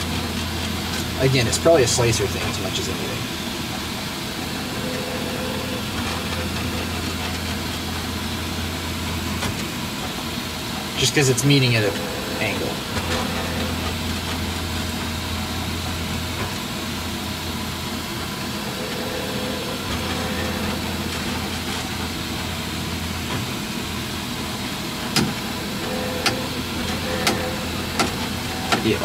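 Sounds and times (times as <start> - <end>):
stepper motors humming: 0.0 - 29.0.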